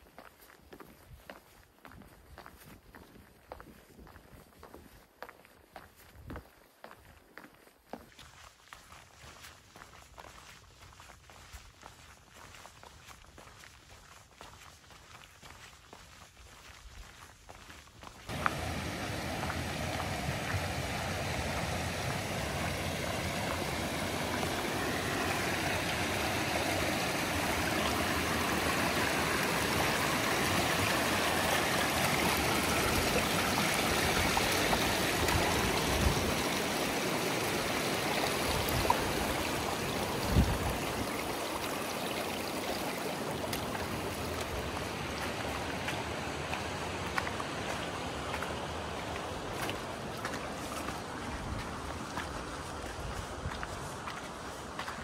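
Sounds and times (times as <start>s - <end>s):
stream rushing over rocks: 18.3s - 55.0s.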